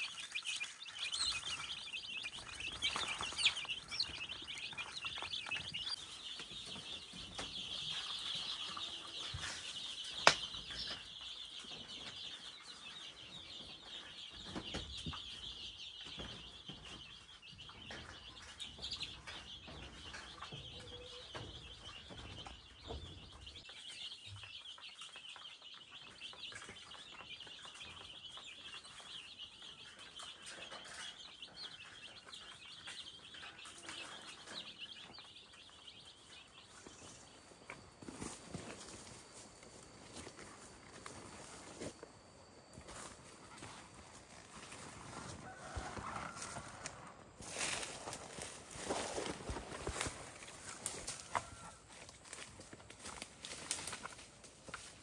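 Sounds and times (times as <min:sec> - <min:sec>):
high dense chirping: 0:00.0 - 0:12.8
chickens clucking: 0:00.0 - 0:55.0.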